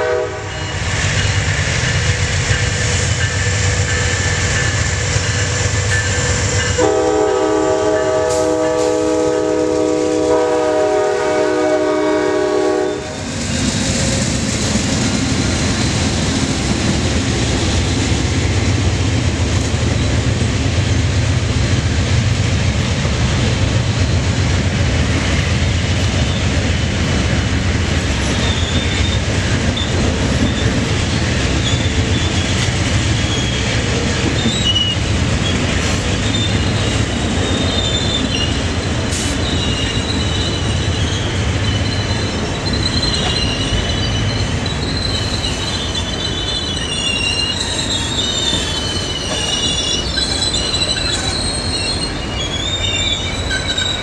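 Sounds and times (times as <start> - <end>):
passenger train rumbling past: 0.0 - 54.0
wheel and brake squealing: 28.2 - 54.0.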